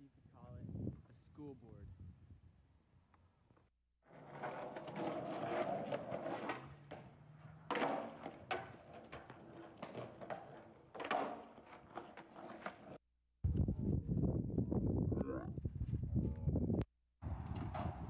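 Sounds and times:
skateboard wheels rolling on concrete: 0:04.0 - 0:13.0, 0:17.3 - 0:18.0
skateboard slapping down: 0:04.2 - 0:13.0.

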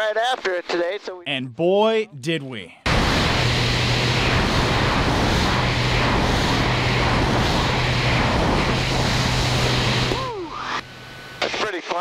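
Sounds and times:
rushing airflow: 0:02.9 - 0:10.8
plane engine and propeller drone: 0:02.9 - 0:12.0.

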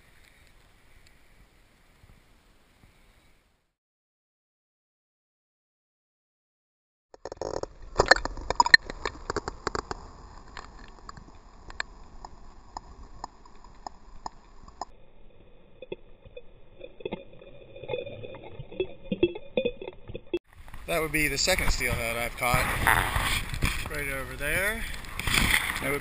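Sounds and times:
river water splashing on camera: 0:16.8 - 0:26.0.

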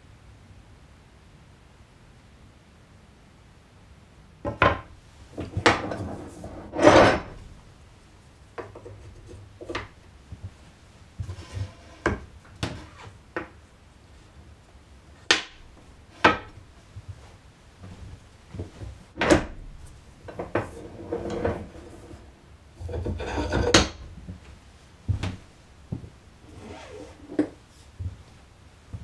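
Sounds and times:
wooden knocks and clunks: 0:04.5 - 0:07.3, 0:15.3 - 0:17.1
wood sliding rub: 0:05.4 - 0:07.4, 0:11.2 - 0:13.1, 0:20.6 - 0:23.8.

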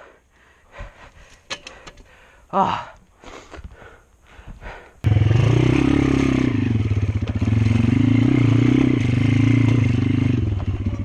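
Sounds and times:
dirt bike engine revving: 0:05.1 - 0:11.0.

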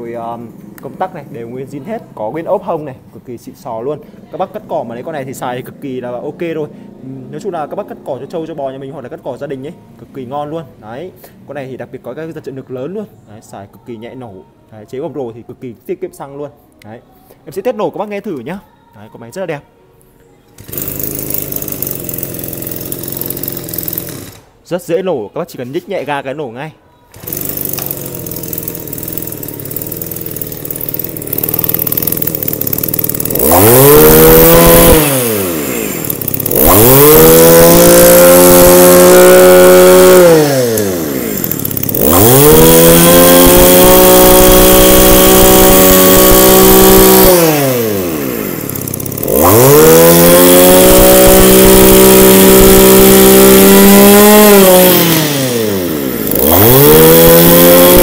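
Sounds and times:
brush cutter engine revving: 0:20.6 - 0:24.5, 0:27.1 - 0:58.0.

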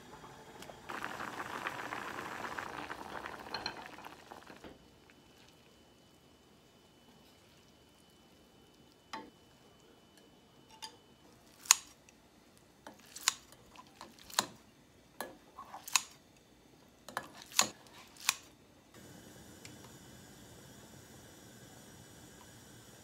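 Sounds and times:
scissors snipping noodles: 0:11.6 - 0:11.9, 0:13.1 - 0:13.4, 0:15.8 - 0:16.2, 0:17.4 - 0:18.5.

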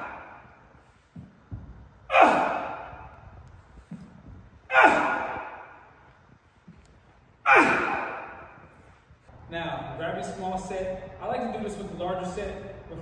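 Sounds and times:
faint low thumps: 0:01.0 - 0:02.1.

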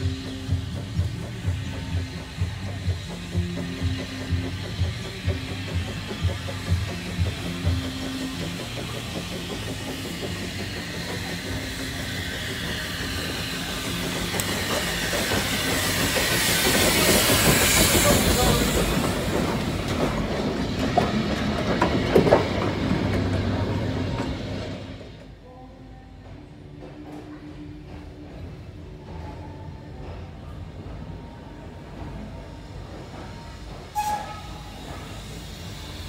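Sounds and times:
steam locomotive hissing: 0:00.0 - 0:25.4, 0:27.6 - 0:36.0
wheels clicking over rail joints: 0:00.0 - 0:25.4.

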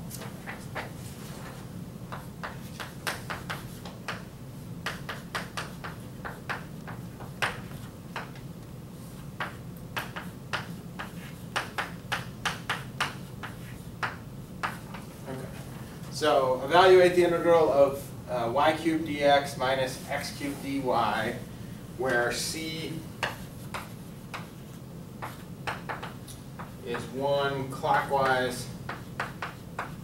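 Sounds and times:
steady low hum: 0:00.0 - 0:30.0
chalk tapping on blackboard: 0:01.5 - 0:08.4, 0:09.4 - 0:15.1, 0:23.2 - 0:27.2, 0:27.9 - 0:30.0.

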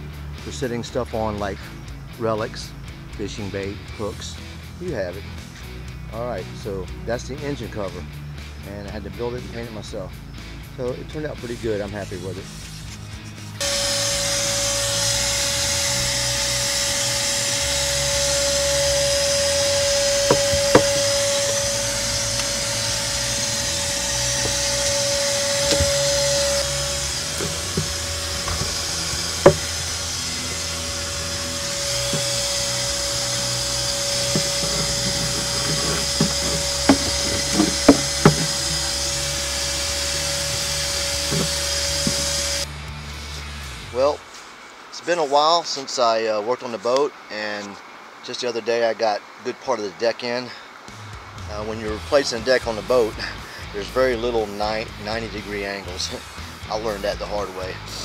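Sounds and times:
electric tool motor humming: 0:12.4 - 0:42.7
wood knocking and clattering: 0:20.2 - 0:21.3, 0:24.3 - 0:29.8, 0:34.1 - 0:38.9, 0:41.2 - 0:42.4.

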